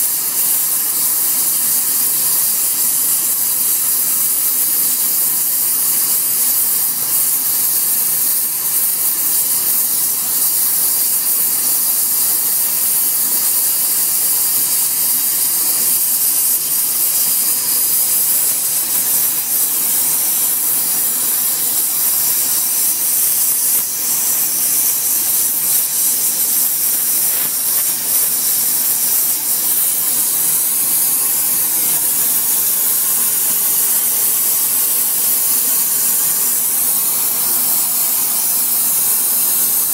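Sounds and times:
torch flame hissing: 0.0s - 39.9s.

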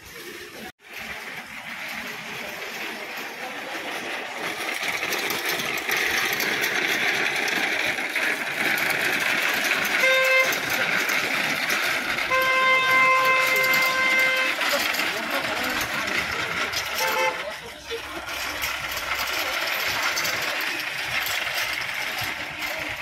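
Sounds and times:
small vehicle engine running: 0.0s - 23.0s
horn honking: 9.9s - 10.9s, 12.2s - 15.0s, 16.8s - 17.6s.

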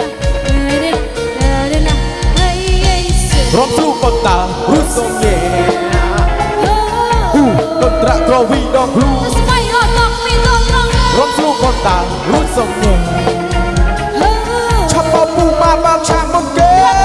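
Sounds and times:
dance band playing: 0.0s - 17.0s
drum kit beat: 0.0s - 17.0s.

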